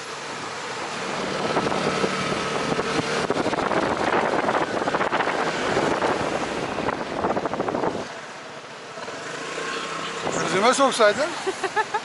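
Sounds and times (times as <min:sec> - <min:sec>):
wind noise on microphone: 0:01.2 - 0:08.2.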